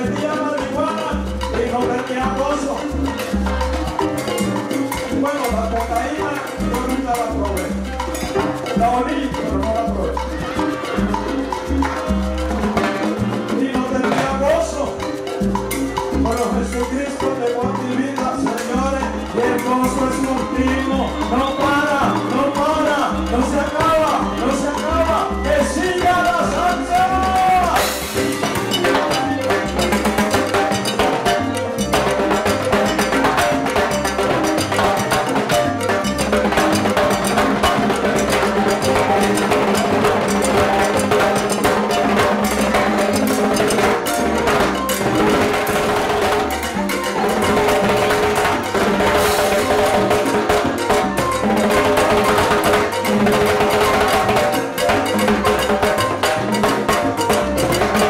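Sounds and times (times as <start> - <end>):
salsa band playing: 0.0 - 58.0.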